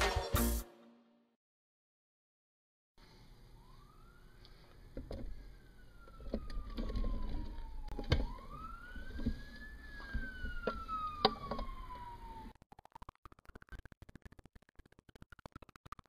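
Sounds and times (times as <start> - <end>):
wailing siren: 3.6 - 13.0.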